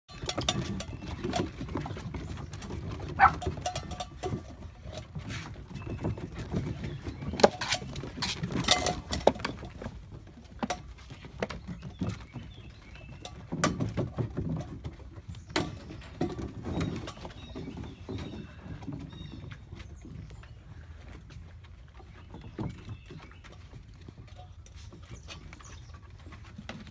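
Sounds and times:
metal bucket clanking: 0:00.1 - 0:20.4
puppies scrambling on wooden deck: 0:00.1 - 0:26.9.

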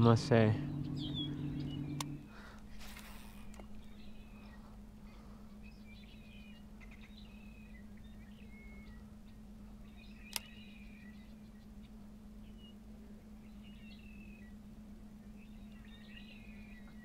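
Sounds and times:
steady low hum: 0:00.0 - 0:17.0
faint bird chirps: 0:00.3 - 0:17.0
whistled bird calls: 0:00.6 - 0:02.2, 0:03.3 - 0:04.7, 0:05.6 - 0:12.8, 0:13.4 - 0:14.6, 0:15.2 - 0:17.0
sharp click: 0:10.2 - 0:10.6.

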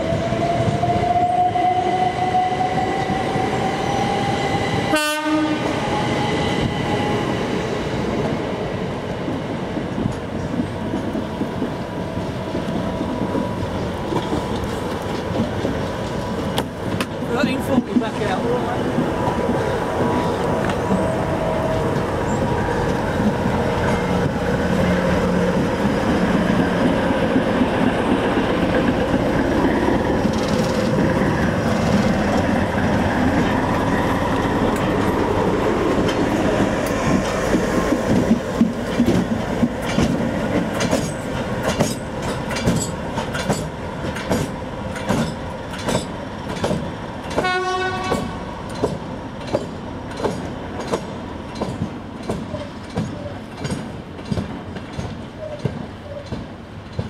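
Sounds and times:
train rumbling and clattering: 0:00.0 - 0:57.0
train horn: 0:04.9 - 0:05.8, 0:47.4 - 0:48.4.

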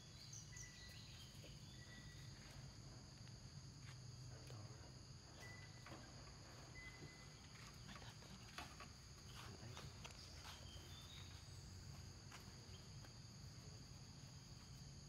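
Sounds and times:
light clicks and rustles: 0:07.5 - 0:10.6.

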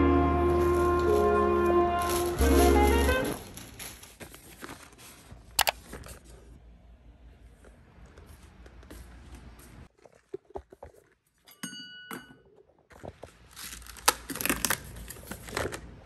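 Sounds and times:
cardboard tearing and crinkling: 0:00.5 - 0:06.4, 0:13.1 - 0:16.0.

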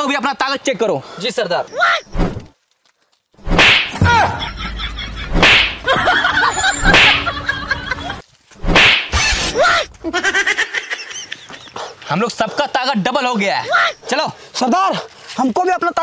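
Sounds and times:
open-hand slaps: 0:03.5 - 0:04.0, 0:05.3 - 0:05.9, 0:06.9 - 0:07.2, 0:08.7 - 0:09.1.

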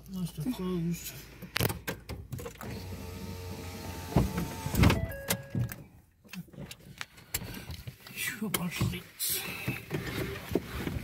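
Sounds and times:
car power window motor: 0:02.5 - 0:05.0.

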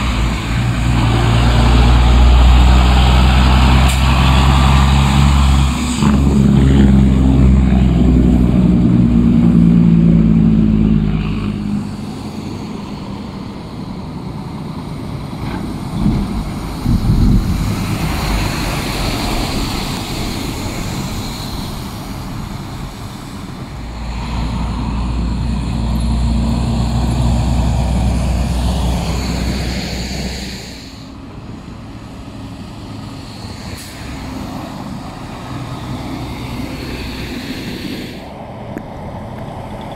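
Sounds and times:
trucks driving past: 0:00.0 - 0:39.9
tyres on slushy pavement: 0:10.6 - 0:39.9.

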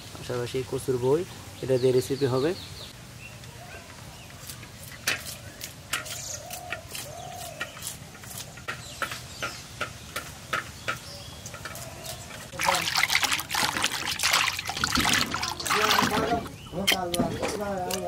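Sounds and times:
splashing running water: 0:12.1 - 0:16.5.

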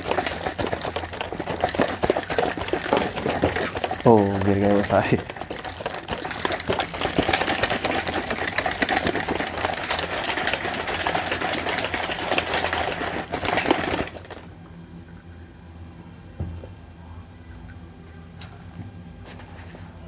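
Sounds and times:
shaker bottle rattling slosh: 0:00.0 - 0:14.5.

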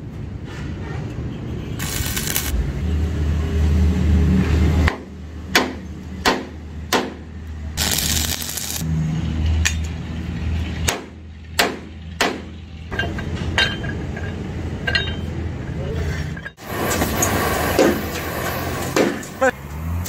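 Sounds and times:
steel parts knocking and clinking: 0:12.2 - 0:15.6.

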